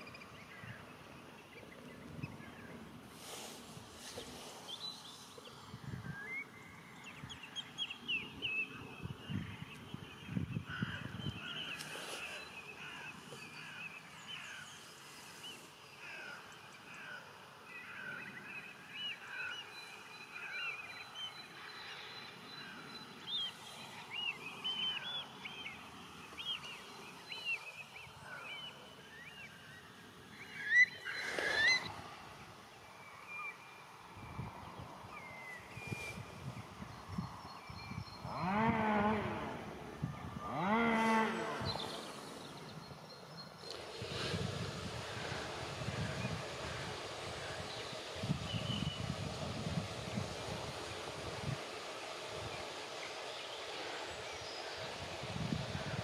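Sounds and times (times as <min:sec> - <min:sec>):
ducks whistling calls: 0:30.6 - 0:31.9.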